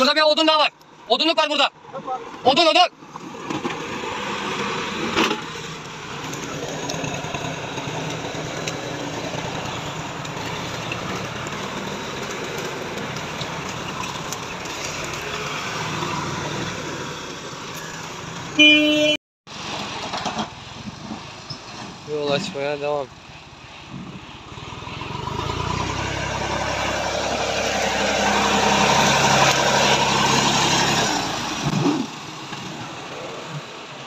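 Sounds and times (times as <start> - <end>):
tractor engine running: 5.3 - 18.6
horn toot: 18.6 - 19.2.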